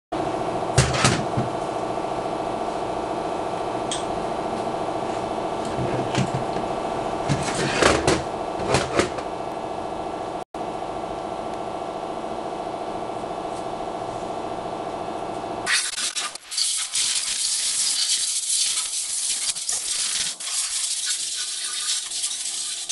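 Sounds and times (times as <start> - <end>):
machine hum: 0.2 - 16.5.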